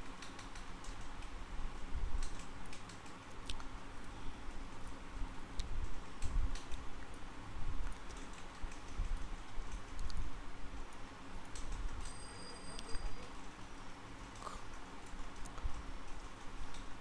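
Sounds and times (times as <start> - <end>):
computer mouse and keyboard clicks: 0.0 - 1.4, 2.2 - 3.7, 7.9 - 10.2.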